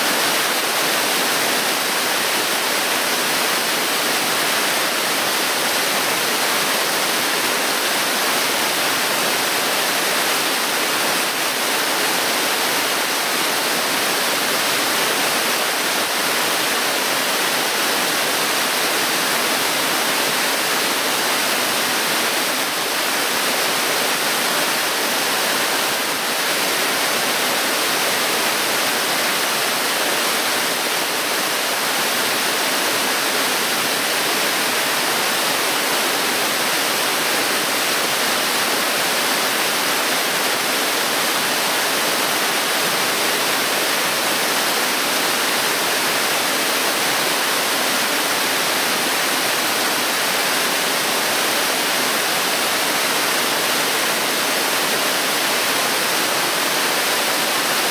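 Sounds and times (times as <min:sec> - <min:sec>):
waterfall splashing into a pool: 0:00.0 - 0:57.9.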